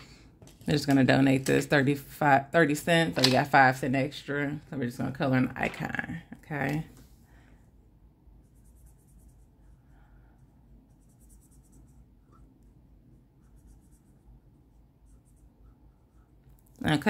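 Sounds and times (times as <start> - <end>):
marker scratching on paper: 8.3 - 17.0.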